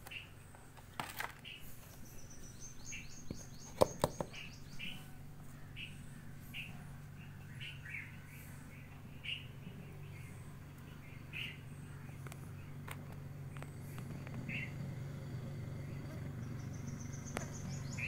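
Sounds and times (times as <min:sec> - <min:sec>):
small birds chirping: 0:00.0 - 0:18.0
sharp knocks: 0:03.7 - 0:04.4.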